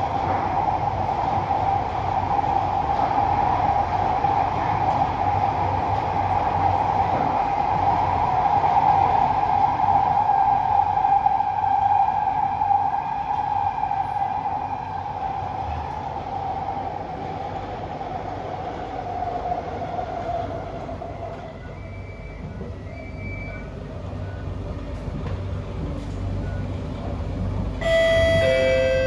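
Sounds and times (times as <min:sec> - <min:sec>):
wheels rumbling on track: 0:00.0 - 0:29.0
two-note chime: 0:27.8 - 0:29.0.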